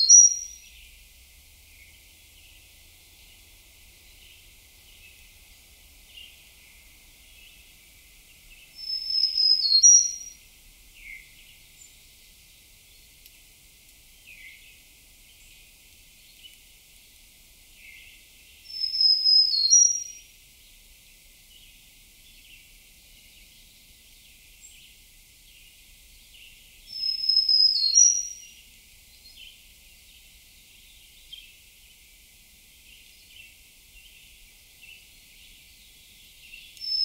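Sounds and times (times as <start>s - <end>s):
songbird singing high phrase: 0.0s - 0.8s, 8.3s - 10.4s, 17.8s - 20.3s, 26.3s - 29.6s, 32.9s - 37.0s
faint bird chirps: 0.0s - 1.0s, 6.1s - 10.4s, 17.8s - 32.0s, 32.8s - 37.0s.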